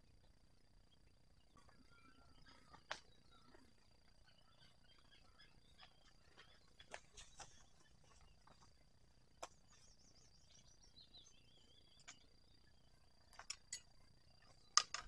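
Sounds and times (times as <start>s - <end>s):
faint bird twittering: 0.0s - 15.0s.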